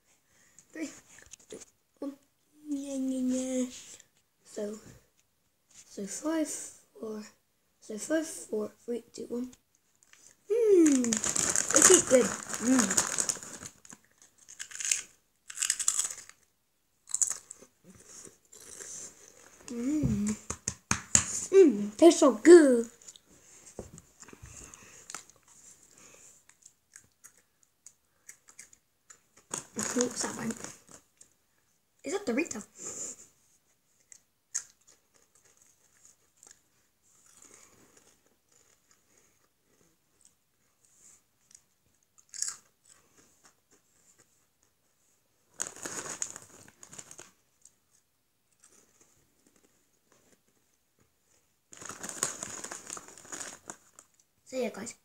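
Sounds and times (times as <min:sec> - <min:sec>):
quiet chewing with crackles: 0:09.5 - 0:20.5, 0:22.9 - 0:31.8, 0:33.0 - 0:54.4
boy crunching crisps: 0:10.0 - 0:20.4, 0:26.5 - 0:31.3, 0:34.0 - 0:40.4, 0:41.5 - 0:44.3, 0:45.5 - 0:50.4, 0:51.7 - 0:54.3
crisp crunching when bitten: 0:10.8 - 0:17.6, 0:42.2 - 0:43.6.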